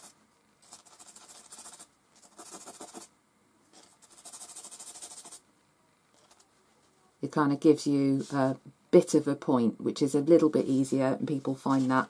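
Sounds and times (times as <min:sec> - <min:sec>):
charcoal scratching on sandpaper: 0:00.0 - 0:03.1, 0:03.8 - 0:05.4.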